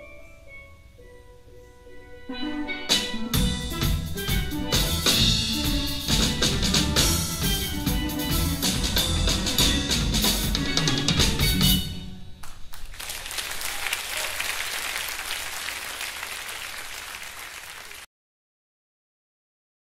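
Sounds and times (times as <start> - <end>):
jazz band playing: 1.9 - 12.2
audience applause: 12.4 - 18.1.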